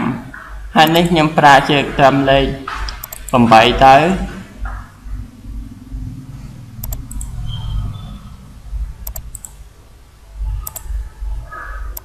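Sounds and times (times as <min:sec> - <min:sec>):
low background rumble: 0:04.6 - 0:12.0
mouse button clicking: 0:09.0 - 0:09.5, 0:10.6 - 0:10.9.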